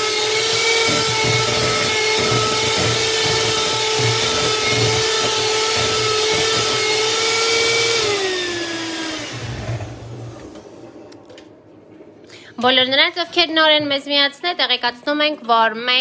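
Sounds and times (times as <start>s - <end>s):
electric hand mixer whining: 0.0s - 10.6s.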